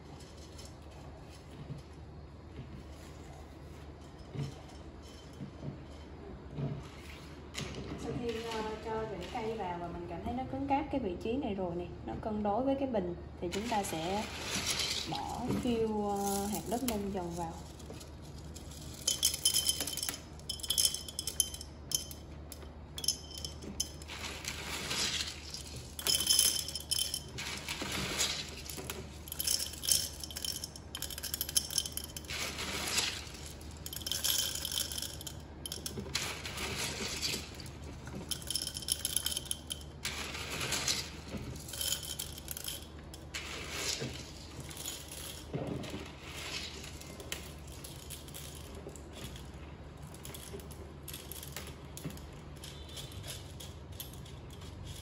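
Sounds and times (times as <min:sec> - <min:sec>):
clay pebbles clattering into glass jar: 0:00.0 - 0:01.8, 0:06.8 - 0:09.9, 0:13.5 - 0:55.0.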